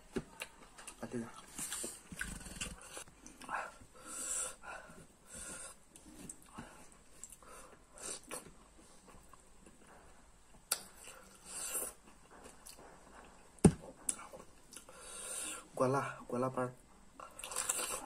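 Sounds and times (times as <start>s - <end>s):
man chewing and lip smacking: 0.3s - 3.5s, 5.9s - 14.9s, 17.2s - 18.0s.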